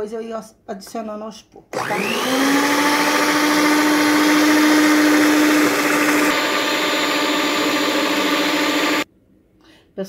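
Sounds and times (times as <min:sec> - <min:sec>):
stand mixer motor hum: 0:01.8 - 0:09.0.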